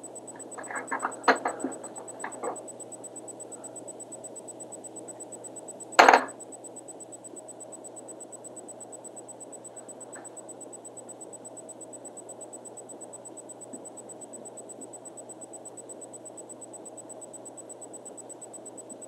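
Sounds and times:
faint high whine: 0.0s - 19.0s.

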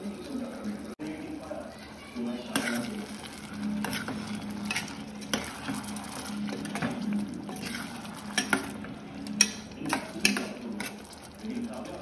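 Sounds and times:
food sizzling: 0.0s - 12.0s
spatula scraping a pan: 2.5s - 11.4s.

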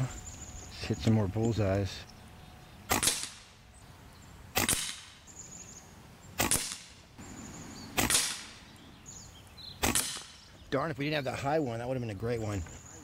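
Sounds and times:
air rifle shots: 2.9s - 3.6s, 4.5s - 5.2s, 6.4s - 8.7s, 9.8s - 10.4s.

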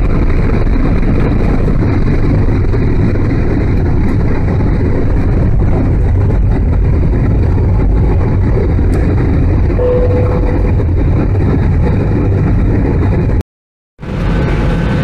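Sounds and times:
jet engines from inside cabin: 0.0s - 13.4s, 14.0s - 15.0s
short steady tone: 9.8s - 11.0s.

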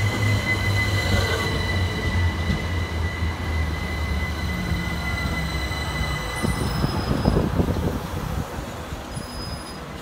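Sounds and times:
electric train whine and hum: 0.0s - 10.0s.

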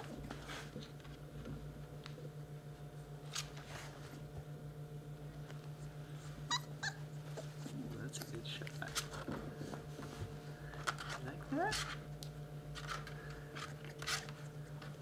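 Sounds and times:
steady low hum: 0.0s - 15.0s
puppies whimpering: 6.4s - 7.2s.

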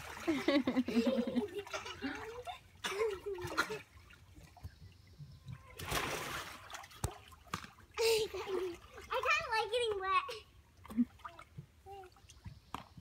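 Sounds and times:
water sloshing and splashing: 0.0s - 13.0s
child's wordless voice: 9.1s - 10.5s.

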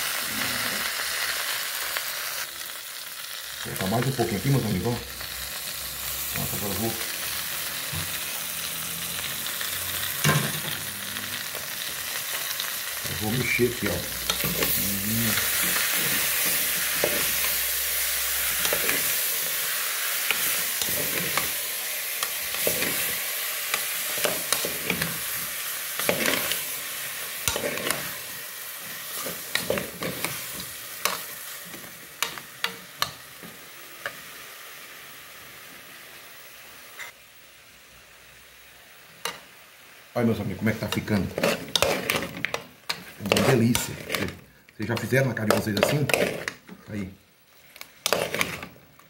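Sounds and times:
food sizzling in a pot: 0.0s - 49.0s
metal spoon knocking and scraping pot: 45.0s - 46.6s.

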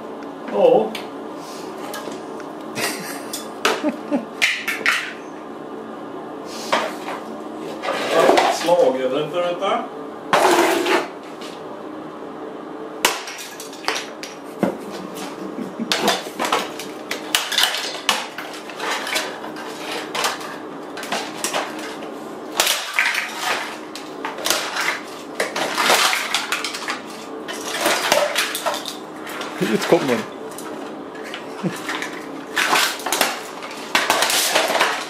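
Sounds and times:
plastic pieces clattering on concrete: 15.9s - 22.0s, 22.6s - 30.2s, 31.2s - 35.0s.

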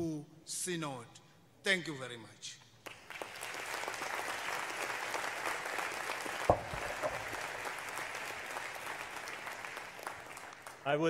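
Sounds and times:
audience applauding: 2.8s - 11.0s
sharp thump: 6.5s - 7.4s.

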